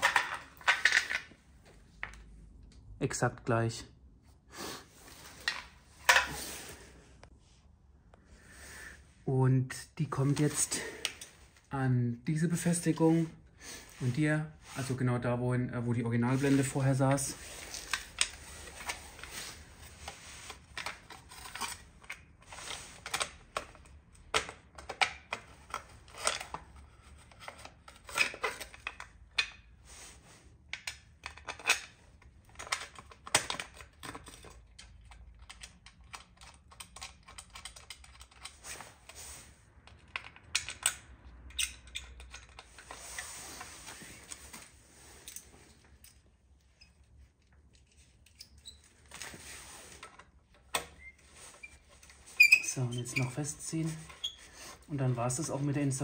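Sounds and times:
small clicks and clatters of parts: 20.0s - 29.6s, 30.7s - 43.2s, 43.9s - 52.7s.

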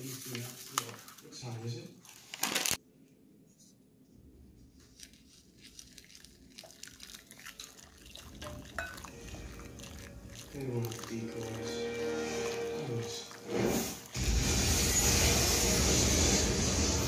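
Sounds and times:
wooden spoon stirring: 5.0s - 14.3s
water pouring into a glass bowl: 5.7s - 14.4s.

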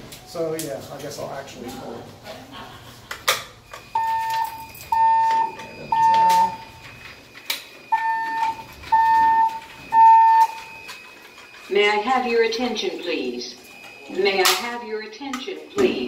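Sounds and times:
fire alarm beeps: 3.6s - 16.0s
fire alarm pull station click: 3.7s - 11.7s.

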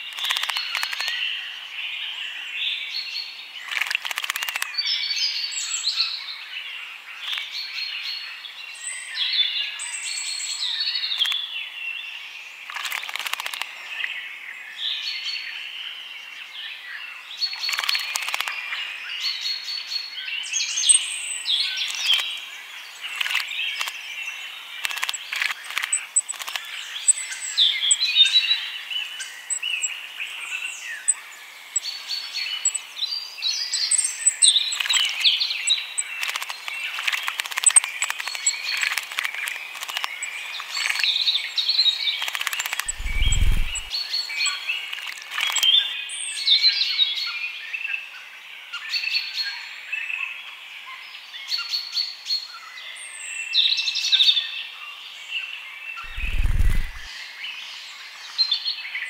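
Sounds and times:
small songbirds singing: 0.0s - 59.0s
birds splashing in water: 42.2s - 43.9s.

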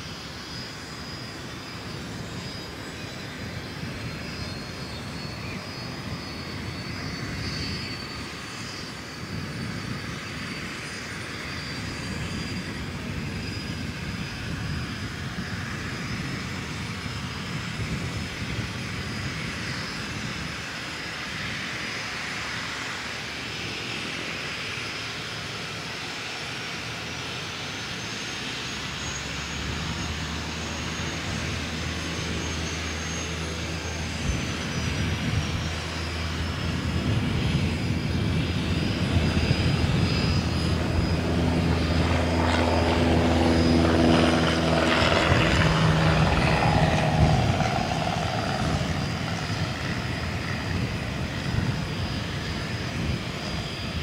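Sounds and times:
jet engines whining: 0.0s - 54.0s.

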